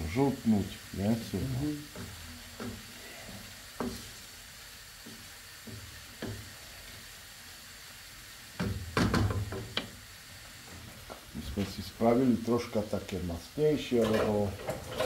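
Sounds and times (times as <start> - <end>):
vegetables sizzling in wok: 0.0 - 15.0
spatula tapping pan: 1.2 - 6.6, 8.5 - 10.0.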